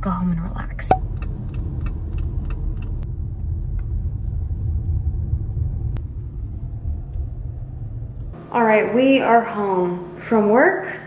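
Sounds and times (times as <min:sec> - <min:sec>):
car interior road and engine rumble: 0:00.0 - 0:08.4.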